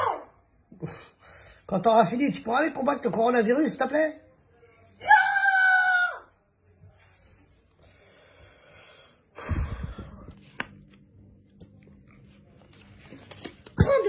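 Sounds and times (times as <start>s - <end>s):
breathy rush with low rumble: 9.4s - 10.4s.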